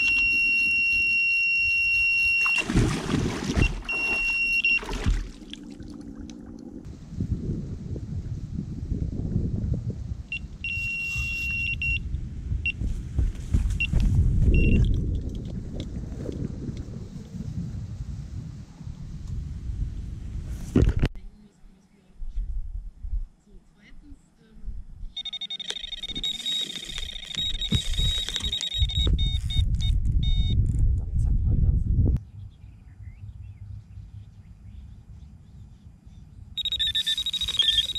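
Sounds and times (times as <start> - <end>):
bite alarm beeps: 0.0 - 2.7, 3.6 - 5.1, 10.3 - 12.0, 14.6 - 14.9, 25.2 - 30.6, 36.6 - 37.9
wind rumble on microphone: 0.0 - 25.2, 27.4 - 37.9
bite alarm high-pitched tone: 36.6 - 37.9.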